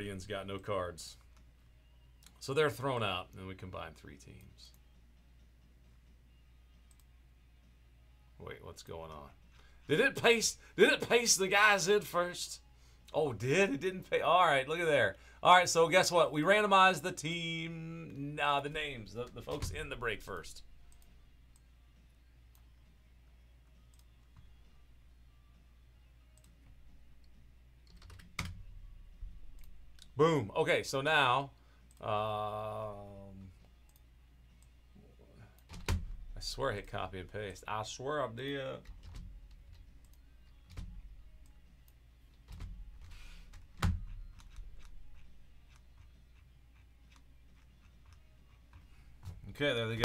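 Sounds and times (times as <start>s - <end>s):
computer mouse clicks: 42.3s - 49.4s.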